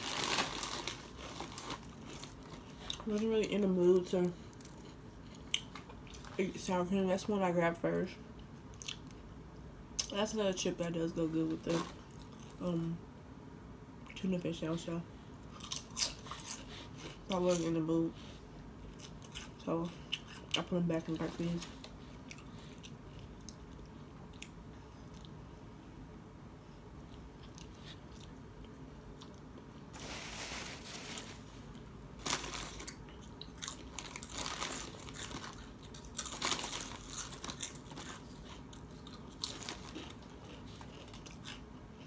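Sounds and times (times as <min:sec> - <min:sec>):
chip bag crinkling: 0:00.0 - 0:05.0, 0:30.0 - 0:31.6, 0:32.2 - 0:41.6
crunching potato chips: 0:00.0 - 0:06.3, 0:15.5 - 0:17.7, 0:32.2 - 0:41.7.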